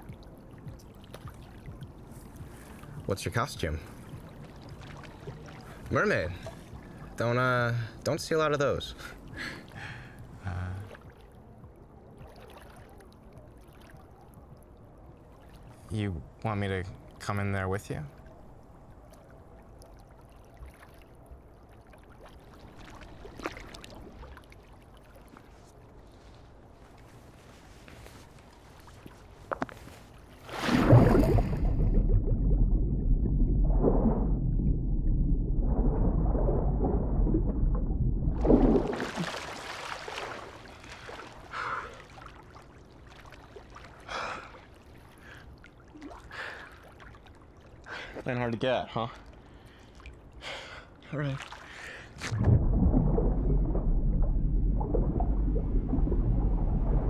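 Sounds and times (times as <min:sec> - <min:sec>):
pool water lapping: 0:00.0 - 0:16.0, 0:16.9 - 0:32.5, 0:38.4 - 0:57.0
sharp water splash: 0:30.4 - 0:32.2, 0:38.3 - 0:44.0, 0:51.4 - 0:56.0.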